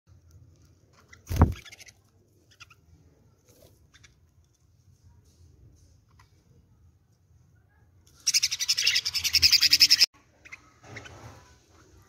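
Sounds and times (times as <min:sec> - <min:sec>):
budgerigars chirping: 0:08.2 - 0:11.1.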